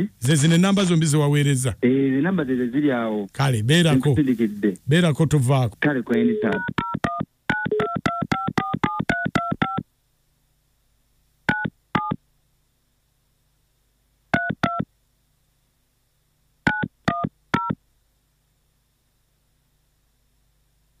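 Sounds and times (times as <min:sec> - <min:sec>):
telephone keypad tones: 0:06.4 - 0:09.8, 0:11.5 - 0:12.2, 0:14.4 - 0:14.9, 0:16.7 - 0:17.8.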